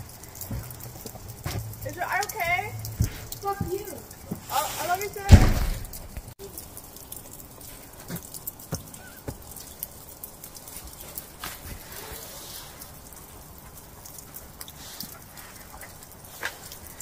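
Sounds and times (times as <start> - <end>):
light rain dripping: 0.0 - 17.0.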